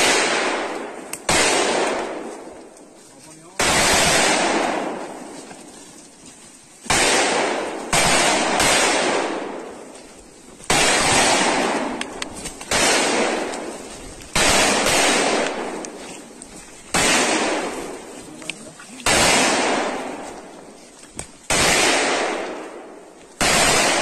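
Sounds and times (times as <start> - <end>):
gunshots with echoing decay: 0.0 - 5.7, 6.8 - 24.0
faint sharp clicks: 1.0 - 1.3, 11.9 - 12.8.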